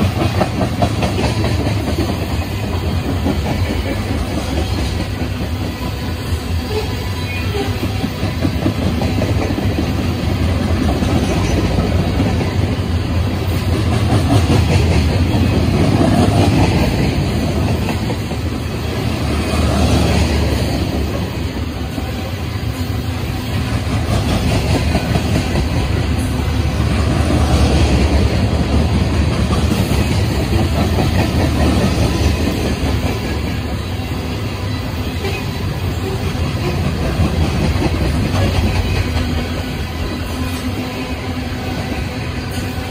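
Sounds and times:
wheel clickety-clack: 0.0s - 5.7s, 7.6s - 12.8s, 13.4s - 18.6s, 27.1s - 33.8s, 36.0s - 39.8s
train wheels rumbling on rails: 0.0s - 42.9s.

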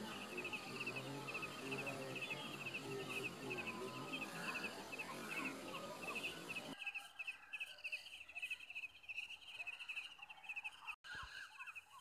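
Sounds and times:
insects chirring: 0.0s - 6.8s
faint bird chirps: 0.0s - 12.0s.

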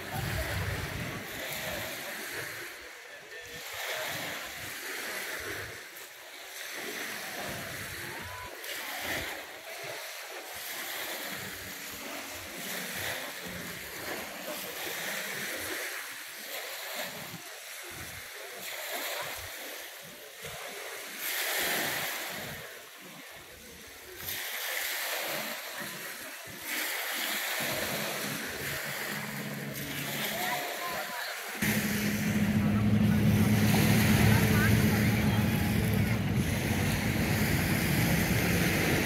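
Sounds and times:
small waves washing onto beach: 0.0s - 39.0s.

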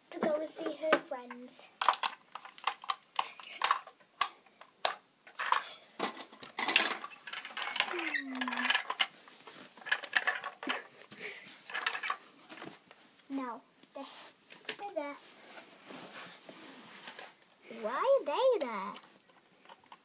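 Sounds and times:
plastic toys clattering on wood: 0.1s - 11.0s, 11.6s - 12.8s, 18.9s - 20.0s
toys scraping and rustling: 6.6s - 10.9s.

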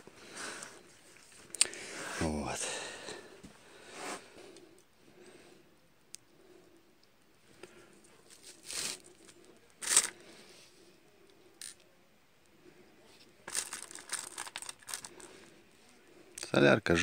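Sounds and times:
small parts clicking: 9.8s - 10.2s.

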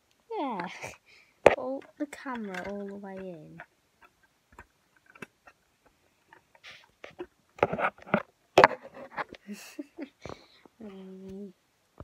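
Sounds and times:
plastic bricks clattering: 0.7s - 5.6s.

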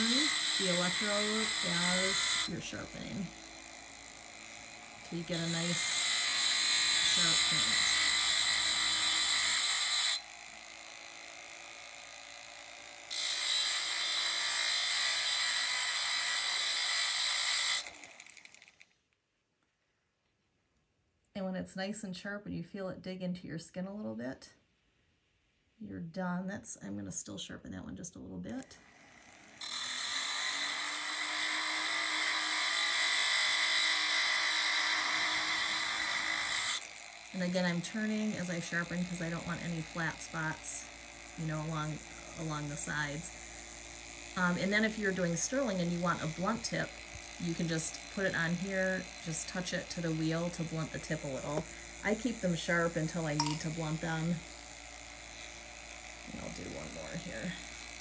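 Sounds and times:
cut-off wheel grinding metal: 0.0s - 18.9s, 28.8s - 58.0s
faint tool hum: 0.0s - 19.0s, 28.6s - 58.0s.

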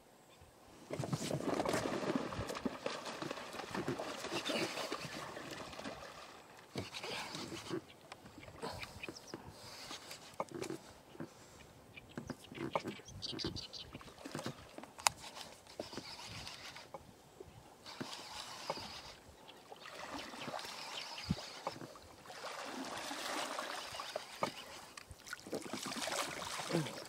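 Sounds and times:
water sloshing around boat: 0.9s - 11.6s, 12.2s - 17.1s, 17.8s - 27.0s.

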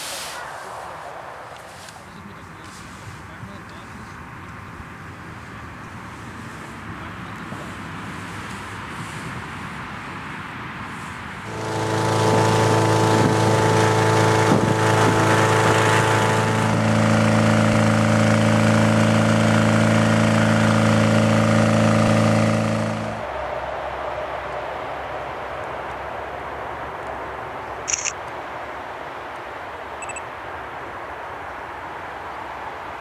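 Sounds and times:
engine-driven fan blowing: 0.6s - 26.6s.

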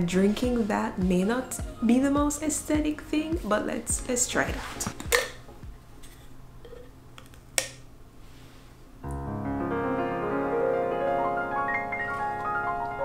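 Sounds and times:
piano background music: 0.0s - 6.2s, 9.0s - 13.0s.

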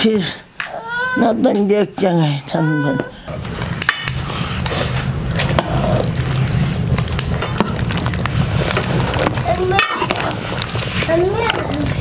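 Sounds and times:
low cooking noise: 2.7s - 12.0s.

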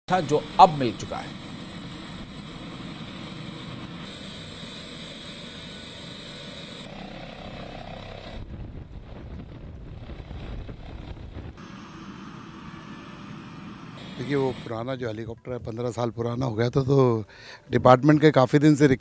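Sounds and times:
helicopter rotor turning: 0.1s - 14.9s.

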